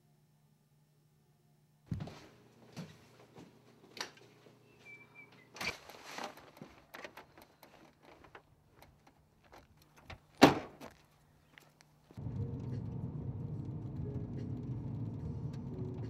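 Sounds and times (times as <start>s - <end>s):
rustling: 5.6s - 12.2s.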